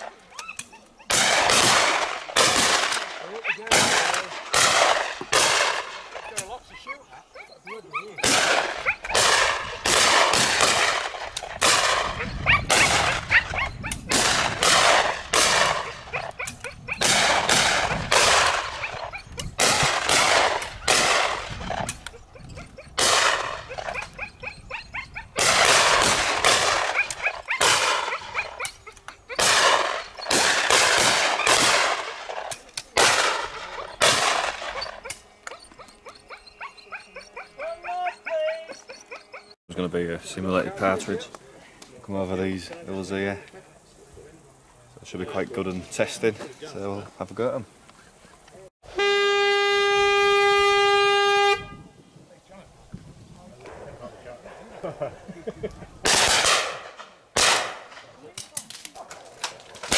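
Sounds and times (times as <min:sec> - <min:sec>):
shotguns firing: 0:01.1 - 0:06.6, 0:08.2 - 0:13.3, 0:14.0 - 0:22.0, 0:23.0 - 0:24.0, 0:25.4 - 0:28.6, 0:29.3 - 0:35.4, 0:56.0 - 0:59.9.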